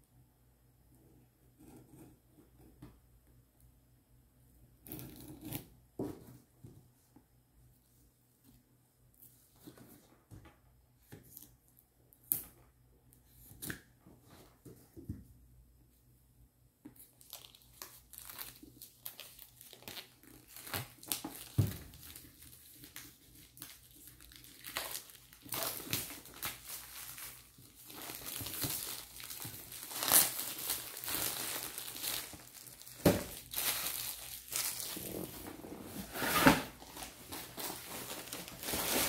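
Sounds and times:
plastic wrap crinkling: 0:17.0 - 0:35.6, 0:36.7 - 0:39.0
cardboard box scraping: 0:35.2 - 0:36.8.

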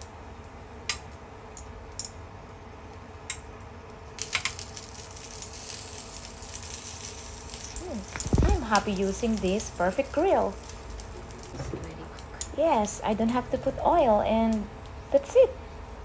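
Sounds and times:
sausages sizzling on a grill pan: 0:04.0 - 0:15.5.

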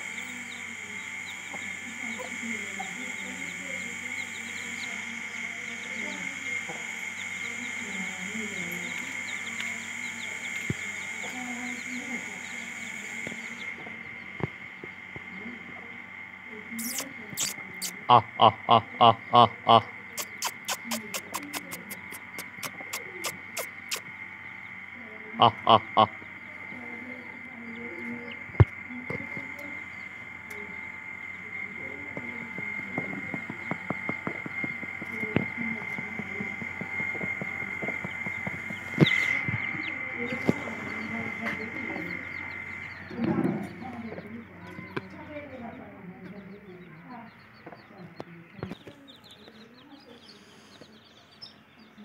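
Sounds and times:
chicks peeping: 0:00.0 - 0:15.4, 0:16.7 - 0:18.0, 0:19.2 - 0:30.6, 0:31.2 - 0:52.0
quick ticks: 0:16.8 - 0:18.0, 0:20.2 - 0:24.0
hen clucking low: 0:16.8 - 0:24.0, 0:25.4 - 0:26.2
sharp click: 0:20.2 - 0:24.0.

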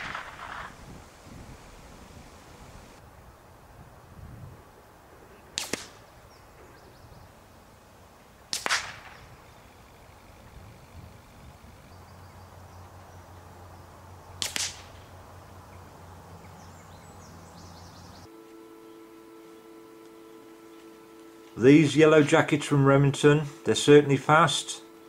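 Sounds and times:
rifle shots cracking: 0:00.0 - 0:00.8, 0:05.6 - 0:06.0, 0:08.5 - 0:09.3, 0:14.4 - 0:15.1.

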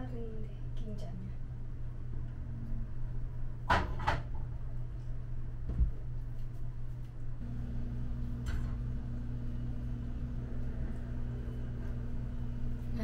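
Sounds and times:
low steady hum: 0:00.0 - 0:13.0
appliance hum: 0:07.0 - 0:13.0.

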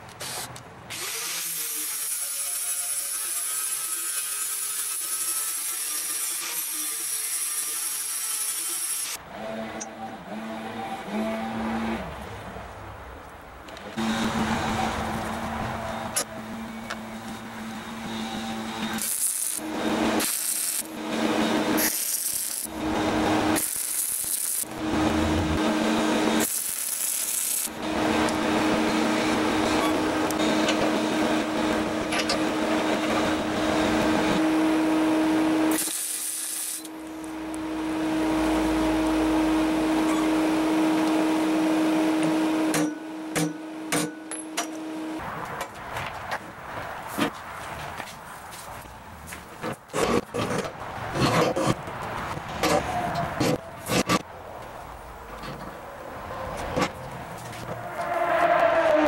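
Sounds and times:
steady welder hum: 0:14.0 - 0:45.2
welding arc crackling and hissing: 0:17.2 - 0:31.0, 0:35.7 - 0:37.6.

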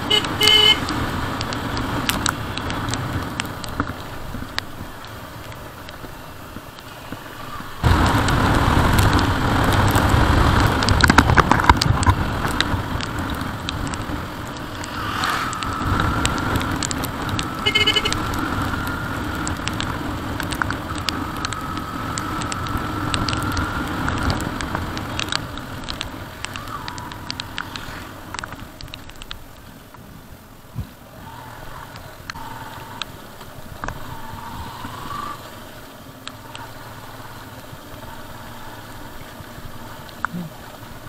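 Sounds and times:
wind and road noise: 0:00.0 - 0:41.0
faint rising tone: 0:14.7 - 0:16.4.

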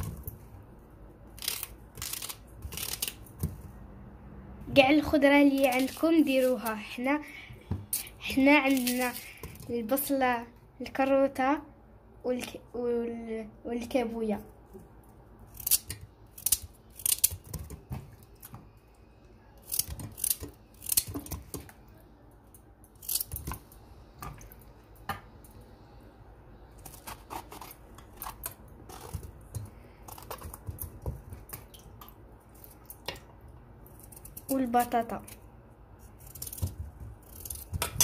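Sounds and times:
knife cutting vegetables: 0:26.8 - 0:31.5.

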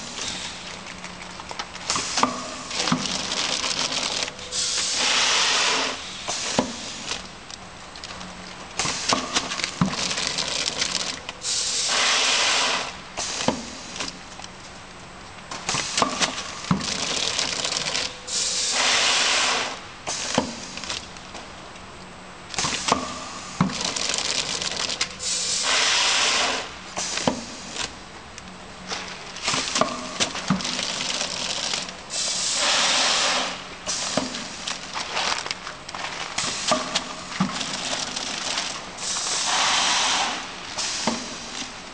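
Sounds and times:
pneumatic hiss: 0:04.5 - 0:07.2, 0:11.4 - 0:14.0, 0:18.3 - 0:20.7, 0:25.2 - 0:27.8, 0:32.1 - 0:35.3, 0:36.4 - 0:37.1, 0:39.0 - 0:41.5.

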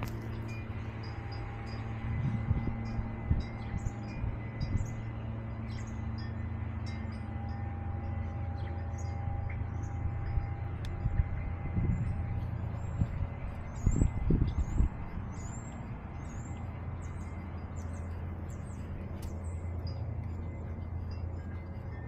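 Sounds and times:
low microphone rumble: 0:00.0 - 0:22.0
songbirds chirping: 0:02.6 - 0:22.0.

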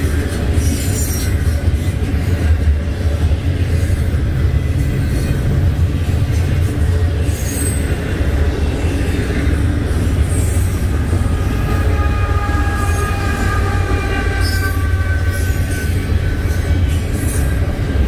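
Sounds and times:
high wheel squeal: 0:10.4 - 0:17.6.

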